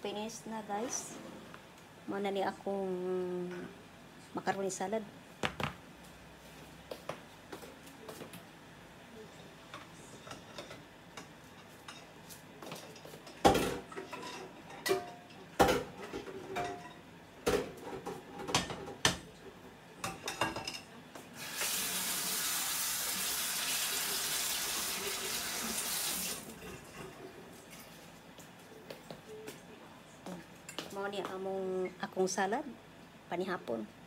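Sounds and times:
dishes clattering: 10.2s - 19.3s, 20.0s - 21.0s
kitchen tap running: 21.4s - 26.8s.

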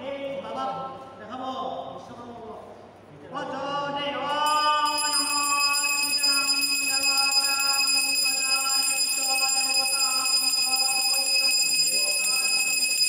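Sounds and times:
high-pitched ringing tone: 4.5s - 13.0s.

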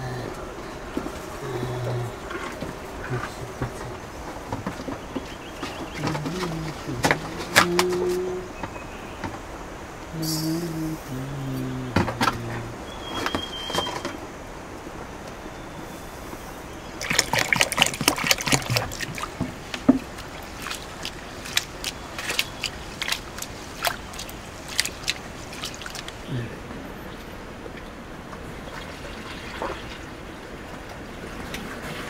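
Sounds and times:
water splashing and sloshing: 0.0s - 32.0s
water dripping: 0.3s - 9.4s, 17.0s - 26.4s.

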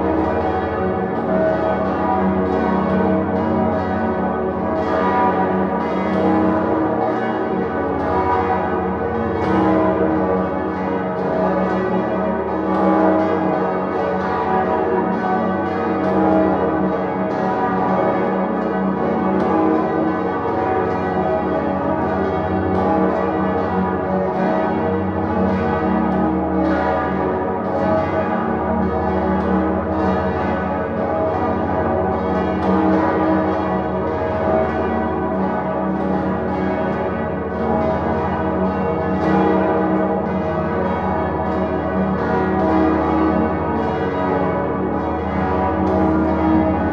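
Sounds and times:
church bells pealing: 0.0s - 46.9s.

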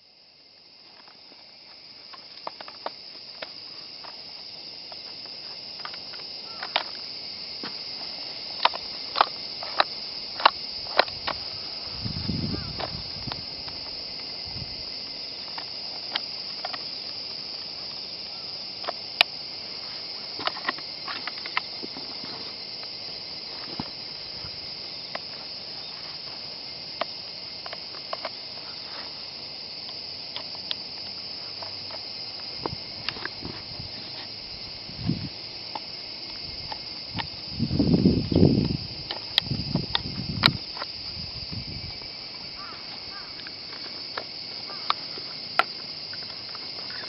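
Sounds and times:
insects droning: 0.0s - 47.0s
rifle parts clicking and knocking: 5.8s - 7.0s, 8.6s - 11.4s, 20.4s - 22.3s, 30.4s - 34.2s.

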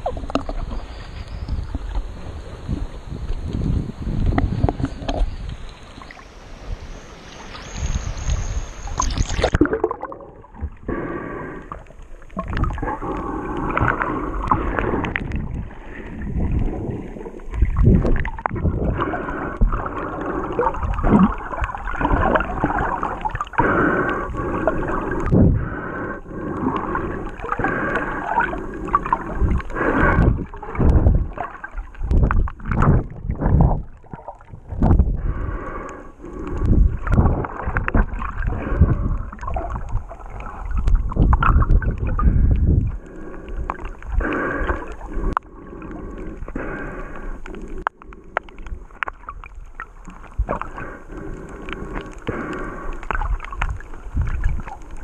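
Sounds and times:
underwater rumbling and gurgling: 0.0s - 55.0s
water splashing: 0.0s - 55.0s
swimming thumps underwater: 28.4s - 35.2s, 36.7s - 43.0s.

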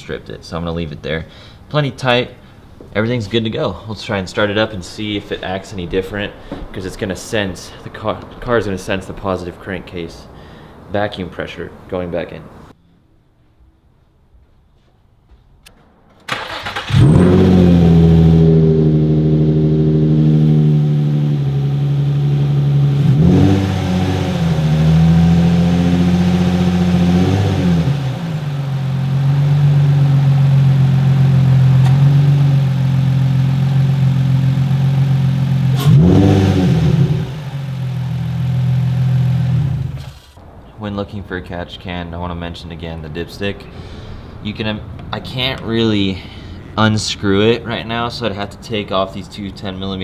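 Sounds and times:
car engine cranking and idling: 16.2s - 40.5s
engine revving: 16.3s - 40.4s.

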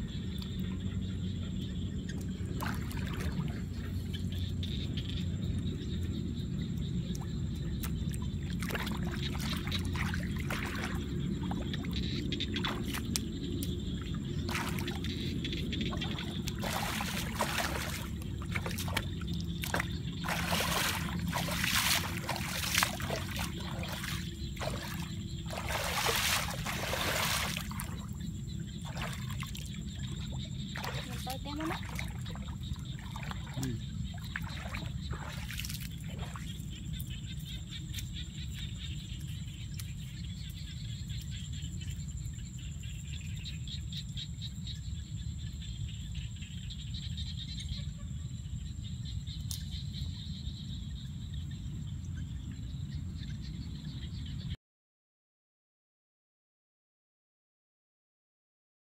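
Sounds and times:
muddy water splashing: 0.0s - 43.4s.

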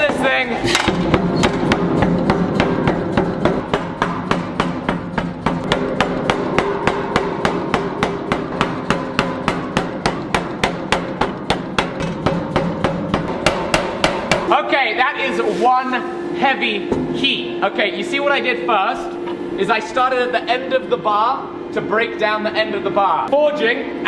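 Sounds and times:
power hammer striking hot steel: 0.0s - 14.6s.

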